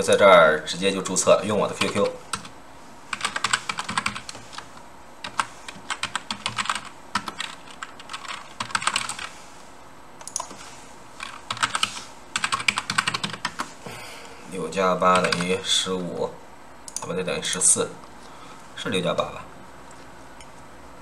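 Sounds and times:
keyboard typing: 1.6s - 2.5s, 3.1s - 9.3s, 10.2s - 10.6s, 11.2s - 13.7s, 15.1s - 15.5s.

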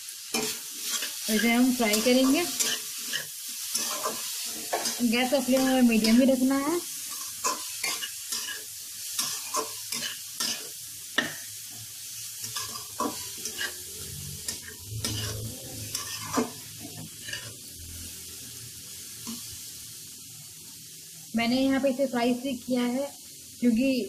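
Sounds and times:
frying sizzle: 0.0s - 24.0s
spatula scraping metal pan: 12.4s - 17.6s.

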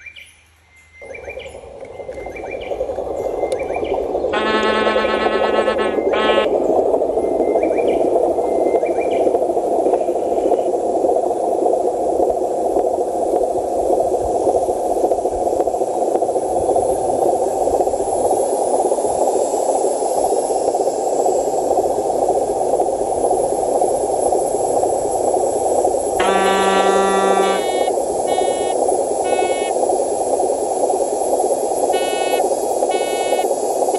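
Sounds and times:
toy truck motor whirring: 26.2s - 29.7s.

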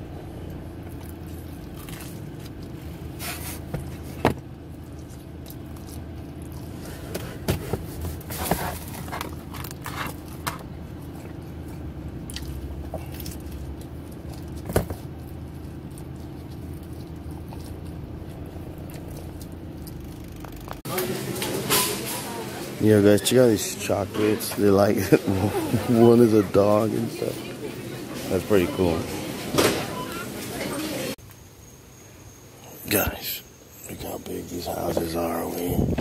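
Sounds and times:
steady low hum: 0.0s - 36.0s
chewing and scraping: 0.8s - 20.9s.

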